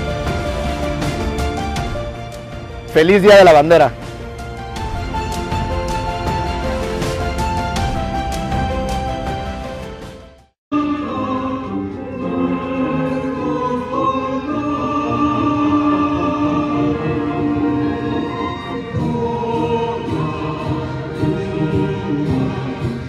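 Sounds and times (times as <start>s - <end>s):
choir singing: 10.7s - 23.0s.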